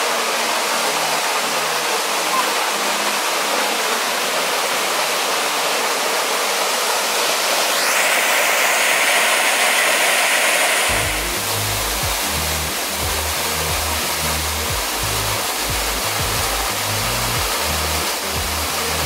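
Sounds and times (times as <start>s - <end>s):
waterfall splashing into a pool: 0.0s - 19.0s
low background music: 10.9s - 19.0s.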